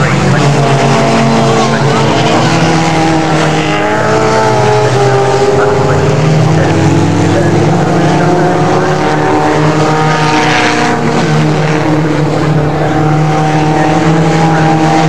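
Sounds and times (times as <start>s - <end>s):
racing car engines: 0.0s - 15.0s.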